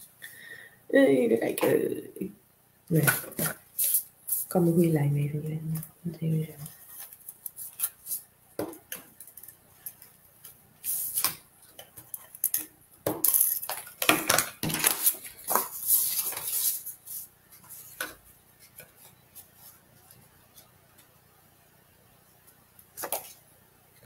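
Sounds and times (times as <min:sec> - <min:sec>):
paper and card rustling: 0:06.5 - 0:12.5, 0:13.4 - 0:21.0.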